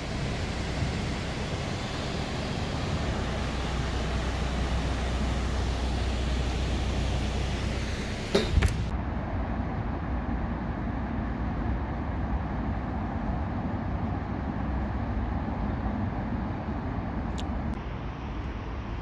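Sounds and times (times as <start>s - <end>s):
city rumble: 0.0s - 19.0s.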